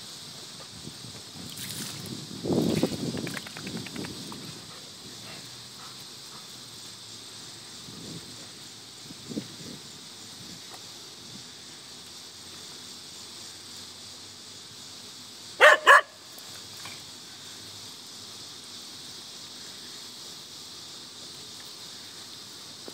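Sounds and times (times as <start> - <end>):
dog barking: 15.6 - 16.2.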